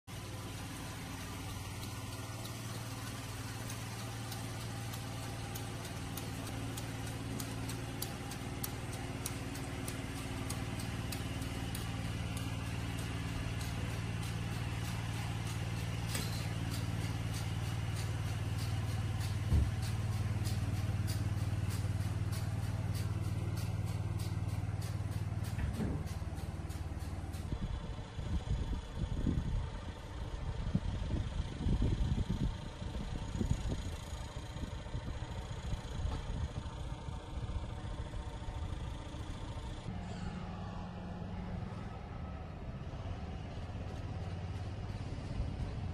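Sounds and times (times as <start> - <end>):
tractor engine running: 0.0 - 45.9
regular ticking: 0.1 - 27.9.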